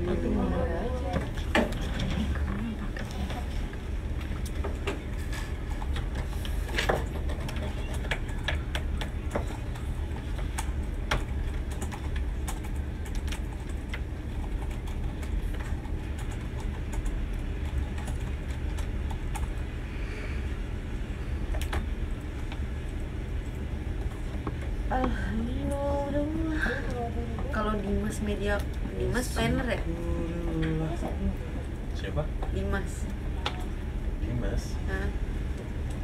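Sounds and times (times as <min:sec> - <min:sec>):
low room rumble: 0:00.0 - 0:36.0
faint clicks and taps: 0:02.9 - 0:19.6.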